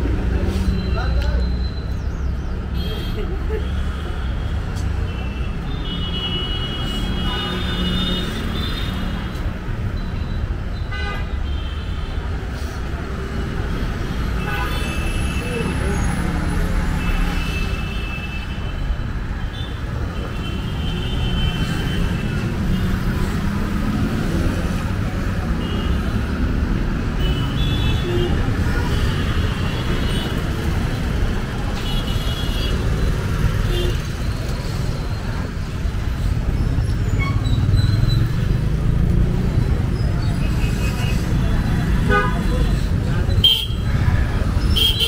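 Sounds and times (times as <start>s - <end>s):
busy street traffic rumble: 0.0s - 45.0s.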